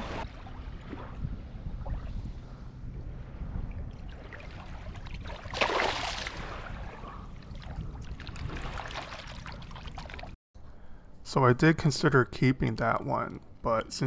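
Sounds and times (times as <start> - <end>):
shallow water lapping: 0.0 - 10.4
fish splashing: 4.3 - 6.6, 7.5 - 10.4.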